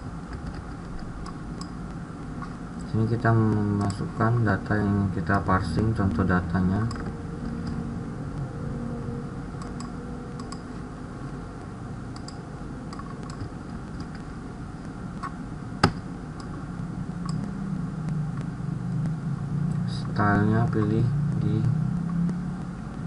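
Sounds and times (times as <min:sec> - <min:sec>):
low background hum: 0:00.0 - 0:23.0
mouse clicks: 0:09.6 - 0:10.7, 0:12.1 - 0:16.6, 0:17.2 - 0:19.2.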